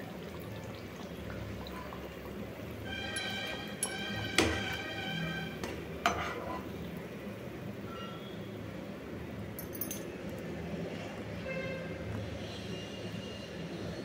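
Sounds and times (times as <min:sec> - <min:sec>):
hot oil sizzling: 0:00.0 - 0:09.5
steel spoon clinking on pan: 0:03.1 - 0:04.7.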